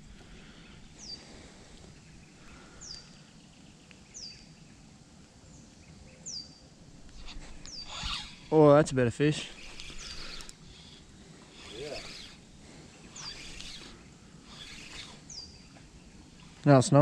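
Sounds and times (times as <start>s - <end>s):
faint outdoor background noise: 0.0s - 17.0s
bird calling: 5.8s - 16.6s.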